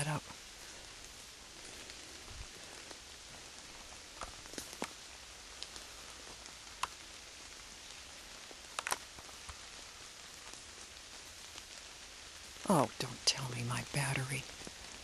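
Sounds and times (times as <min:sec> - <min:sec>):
light rain falling: 0:00.0 - 0:15.0
sharp clicks: 0:08.7 - 0:09.1.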